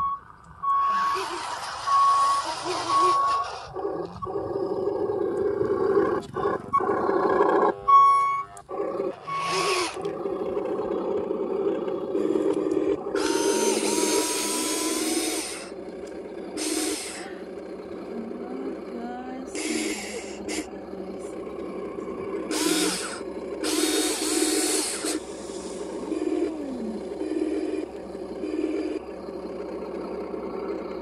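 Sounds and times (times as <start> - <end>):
electronic reversing beeps: 0.0 - 10.0
toy truck electric drive whining: 0.7 - 31.0
hiss: 22.5 - 26.1.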